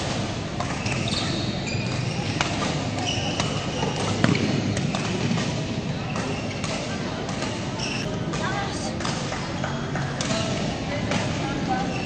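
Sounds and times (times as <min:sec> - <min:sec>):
shoes squeaking on court floor: 0:00.6 - 0:08.1.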